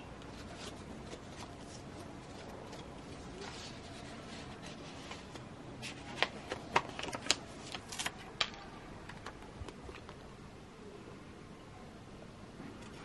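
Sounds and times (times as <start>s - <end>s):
paper envelopes rustling: 0.2s - 10.2s.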